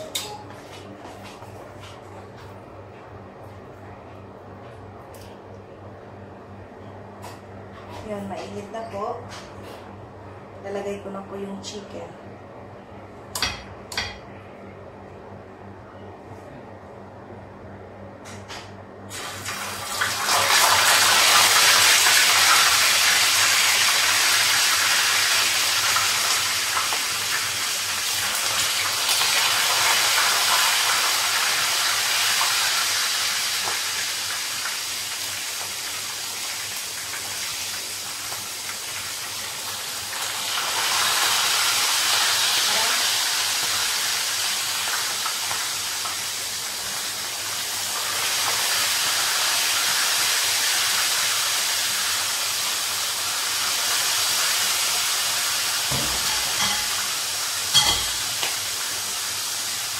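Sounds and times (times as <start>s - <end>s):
chicken sizzling in hot oil: 19.1s - 59.9s.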